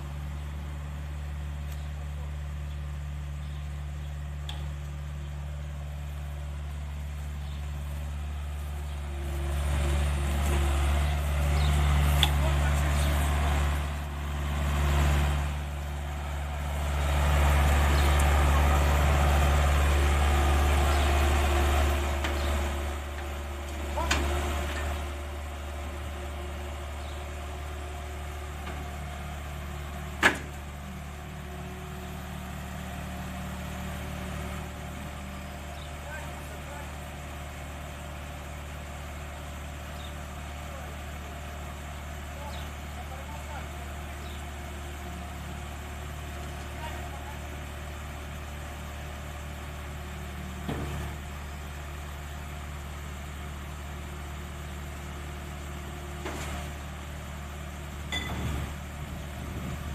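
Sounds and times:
diesel loader engine humming: 0.0s - 59.9s
sharp metal clank: 58.1s - 58.4s.

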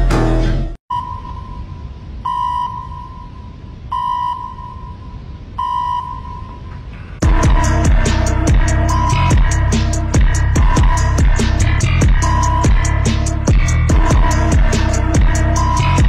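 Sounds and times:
low rumble: 0.0s - 16.0s
electronic beeps: 0.9s - 6.7s, 12.2s - 13.0s
high electronic tone: 0.9s - 16.0s
heavy beat-driven music: 7.2s - 16.0s.

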